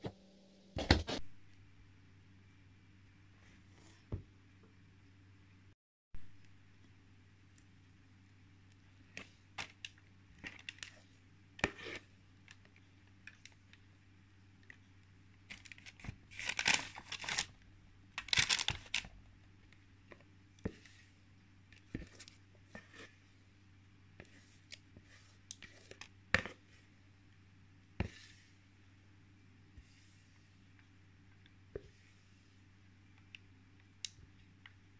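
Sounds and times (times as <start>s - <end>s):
bowl clicks and scrapes: 11.6s - 12.1s, 21.8s - 23.3s, 24.2s - 26.9s
parchment paper crinkling: 15.5s - 17.6s, 18.2s - 19.1s.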